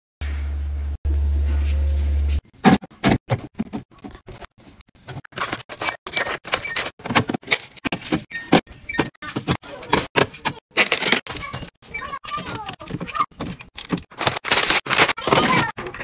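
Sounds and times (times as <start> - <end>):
plastic bottles clattering: 5.0 - 16.0.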